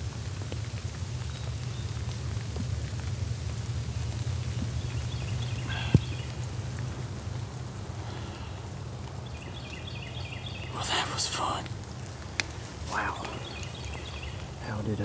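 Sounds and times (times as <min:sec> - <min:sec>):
steady rain: 0:00.0 - 0:15.0
repeated bird calls: 0:04.7 - 0:06.5, 0:07.9 - 0:11.7, 0:12.8 - 0:15.0.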